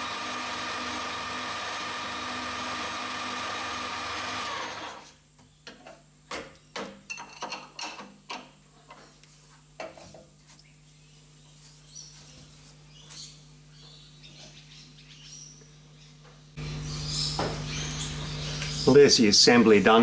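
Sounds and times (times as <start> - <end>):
metal lathe whining: 0.0 - 5.1.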